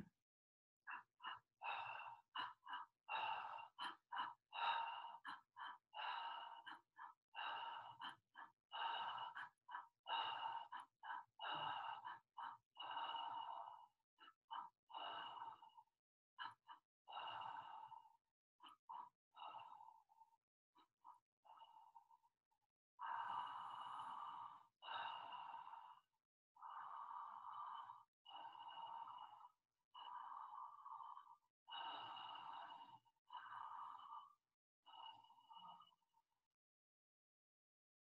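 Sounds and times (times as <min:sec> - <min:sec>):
woman breathing rhythmically: 0:00.0 - 0:36.6.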